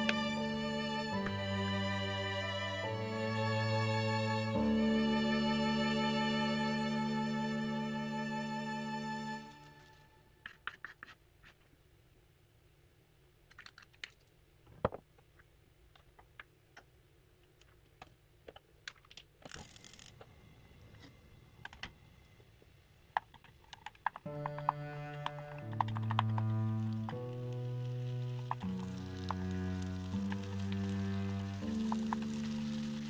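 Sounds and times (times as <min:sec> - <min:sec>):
small clicks and taps: 0:23.2 - 0:27.4
plastic glove crinkling: 0:26.8 - 0:33.0.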